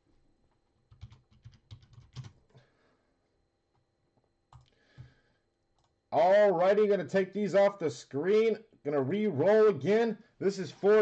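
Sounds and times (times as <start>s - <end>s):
typing on computer keyboard: 0.8s - 2.5s.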